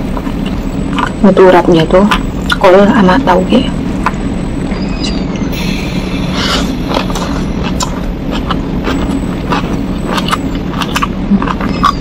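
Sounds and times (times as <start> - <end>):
low hum: 0.0 - 12.0
close chewing with wet mouth clicks: 0.1 - 1.2, 2.0 - 2.6, 6.4 - 12.0.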